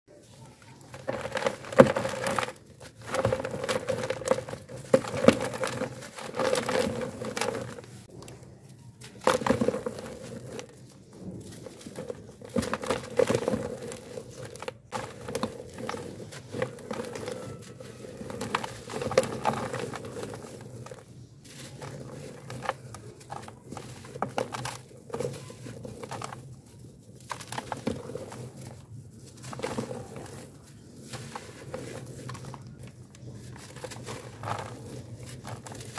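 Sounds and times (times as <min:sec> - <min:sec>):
grit pattering into plastic tub: 0:00.2 - 0:08.1, 0:09.0 - 0:35.9
charcoal crushed by hand: 0:00.6 - 0:08.4, 0:09.0 - 0:35.9.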